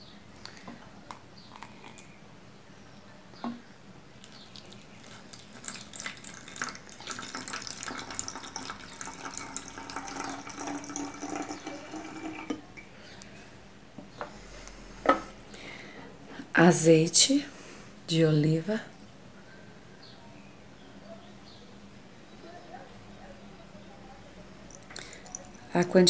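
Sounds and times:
water pouring into plastic bottle: 4.2s - 12.6s, 24.7s - 25.7s.

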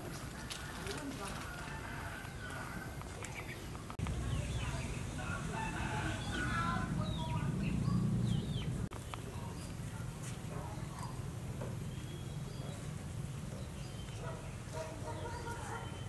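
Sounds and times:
low steady rumble: 4.0s - 8.9s.

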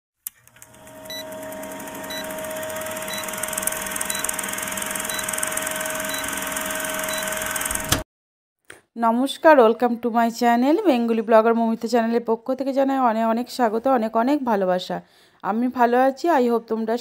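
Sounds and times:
film projector clatter: 0.3s - 8.0s.

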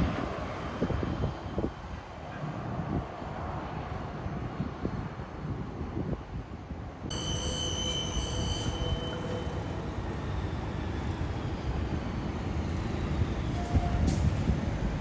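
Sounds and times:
wind rumbling on microphone: 0.0s - 7.2s, 9.5s - 15.0s
high-pitched whine: 7.1s - 11.9s.

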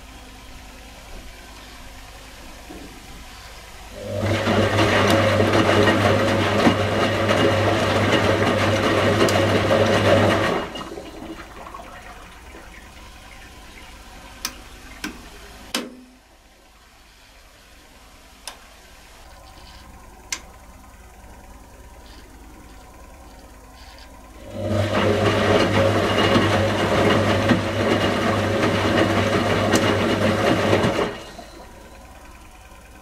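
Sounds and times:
steady electrical hum: 0.0s - 26.9s, 31.1s - 33.0s
water rushing through washing machine: 3.8s - 15.8s, 24.3s - 33.0s
washing machine drum turning: 4.0s - 16.1s, 24.4s - 31.9s.

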